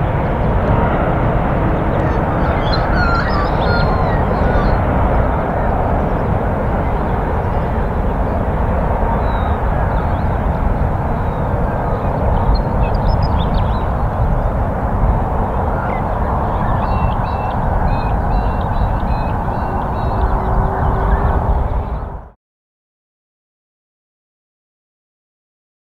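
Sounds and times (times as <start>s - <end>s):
jet engines roaring: 0.0s - 22.4s
short bird calls: 2.0s - 4.8s.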